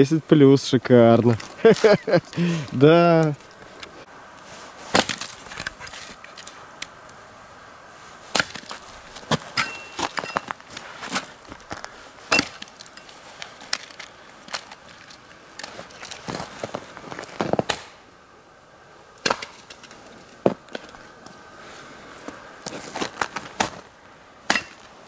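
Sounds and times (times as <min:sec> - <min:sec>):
hatchet chopping wood: 0:04.9 - 0:05.3, 0:08.3 - 0:08.7, 0:12.4 - 0:12.7, 0:24.5 - 0:24.8.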